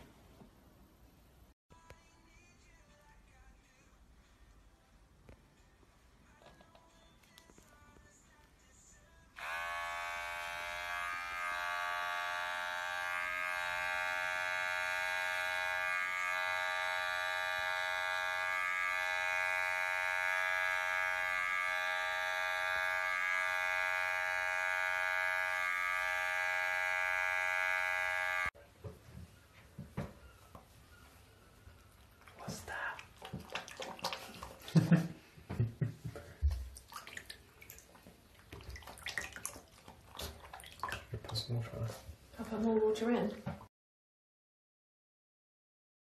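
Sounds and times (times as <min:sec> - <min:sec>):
electric hair clipper buzzing: 0:09.4 - 0:28.6.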